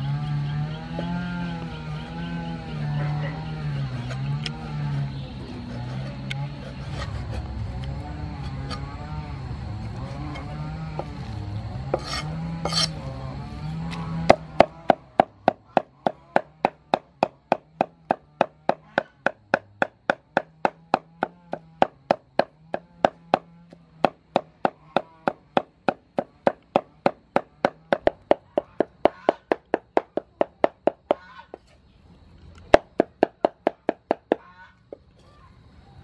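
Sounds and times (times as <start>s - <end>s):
cleaver chopping meat on wood: 14.2s - 31.2s, 32.7s - 34.4s.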